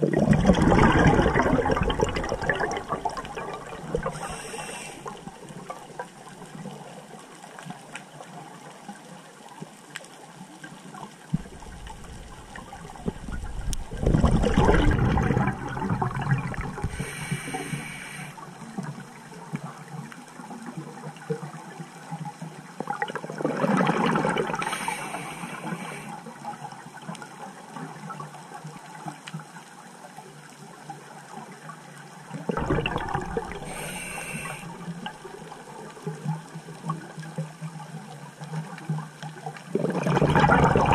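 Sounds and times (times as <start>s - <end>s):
exhaled bubbles rushing: 0.0s - 6.0s, 11.4s - 17.9s, 22.9s - 26.0s, 32.4s - 35.9s, 39.7s - 40.9s
regulator hiss: 4.1s - 5.3s, 16.8s - 18.4s, 24.6s - 26.2s, 33.6s - 34.8s.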